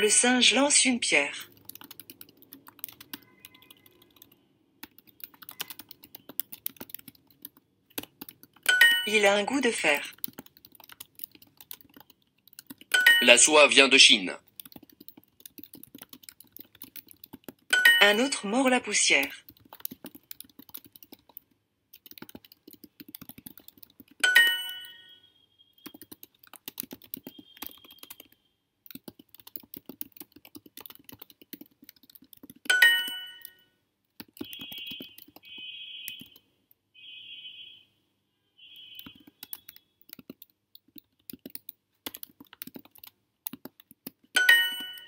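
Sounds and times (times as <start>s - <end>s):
keyboard typing clicks: 1.5s - 9.3s, 10.1s - 13.3s, 14.4s - 18.3s, 19.4s - 25.0s, 25.8s - 33.6s, 34.2s - 36.4s, 38.8s - 45.0s
bright answer chime: 8.7s - 9.3s, 13.0s - 13.6s, 17.8s - 18.4s, 24.2s - 25.2s, 32.7s - 33.6s, 44.4s - 45.0s.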